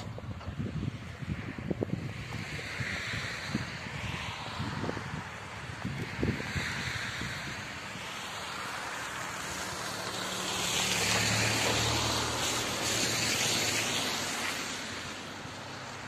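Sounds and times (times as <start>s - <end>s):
car driving past: 5.9s - 16.0s.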